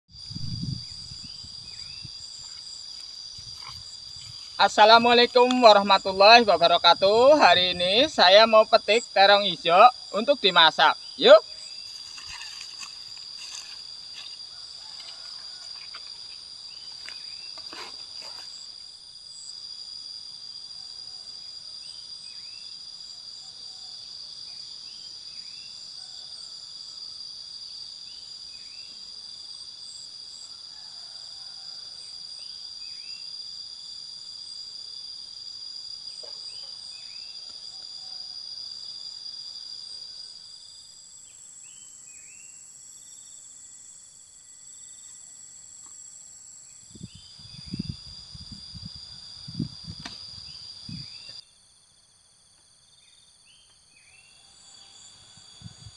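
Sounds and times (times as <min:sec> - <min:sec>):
high-pitched insect chorus: 0:00.1 - 0:55.9.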